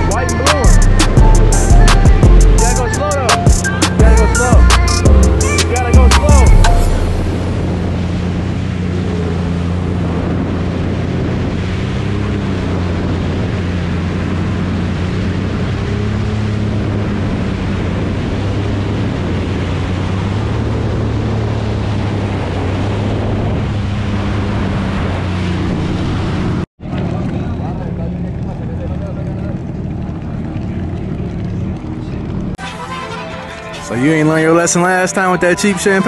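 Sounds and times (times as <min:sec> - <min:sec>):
jet ski engine droning: 0:00.0 - 0:36.0
wind on microphone: 0:06.7 - 0:26.6.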